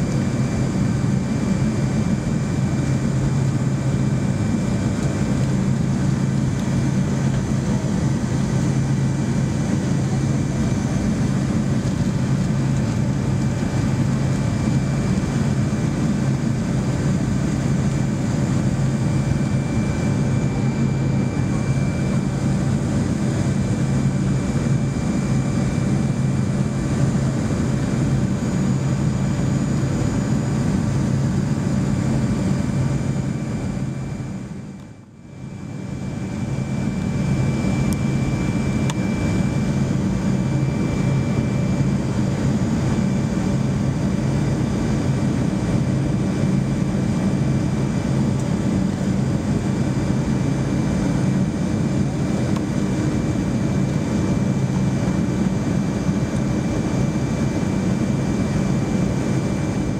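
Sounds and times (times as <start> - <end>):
airplane cabin engine rumble: 0.0 - 59.9
faint high whine: 0.0 - 59.9.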